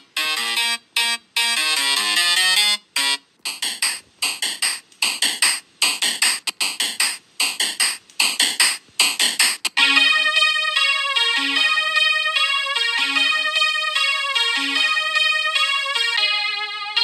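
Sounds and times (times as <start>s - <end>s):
choppy synthesizer notes: 0.0s - 17.0s
smooth keyboard melody: 9.7s - 17.0s.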